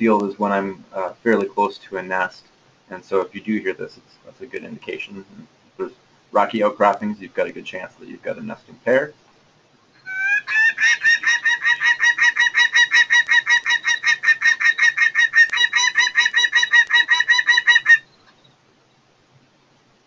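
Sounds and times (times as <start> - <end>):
falcon calling harsh notes: 10.0 - 18.1.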